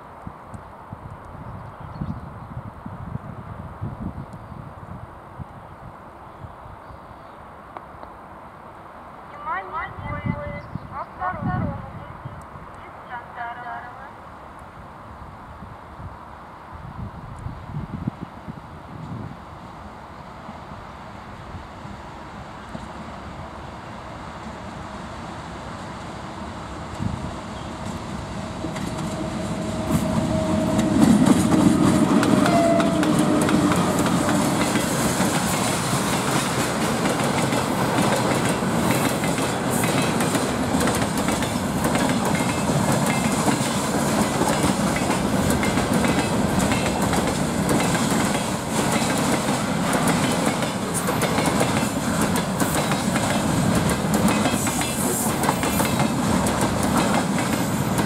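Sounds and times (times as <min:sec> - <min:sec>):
electric locomotive tones: 0:26.8 - 0:35.4.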